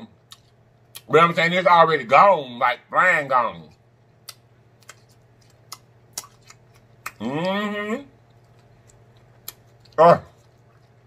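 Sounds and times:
person humming mmm: 7.0 - 8.2.

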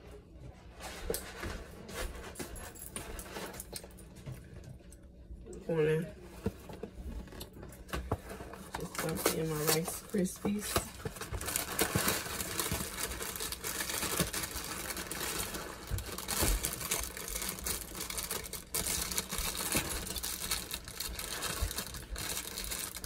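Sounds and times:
plastic crinkling: 6.9 - 23.0
dry cereal pouring: 11.6 - 23.0.

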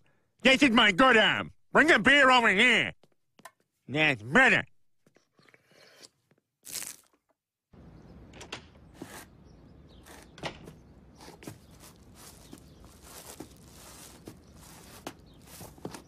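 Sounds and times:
uneven footsteps: 11.1 - 16.0.

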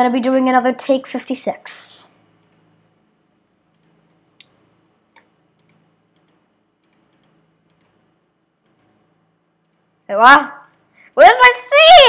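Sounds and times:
faint low hum: 0.0 - 12.0
computer mouse clicks: 2.4 - 2.7, 3.7 - 9.0, 9.6 - 9.9, 10.6 - 10.9.

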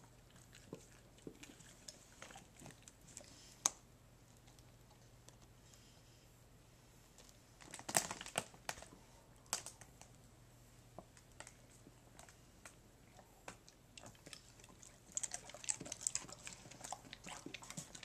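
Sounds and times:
dogs licking and lip smacking: 0.0 - 3.4, 13.1 - 18.0.

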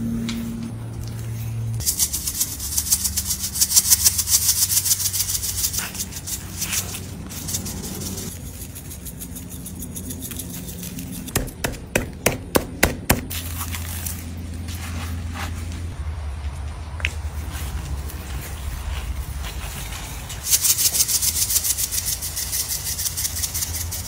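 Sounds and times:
seasoning rattling onto meat: 1.8 - 11.5, 20.4 - 24.0.

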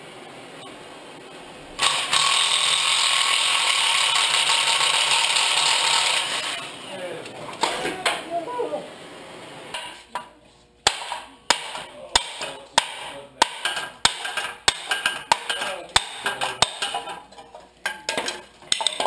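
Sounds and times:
hammer striking steel: 10.8 - 17.2.

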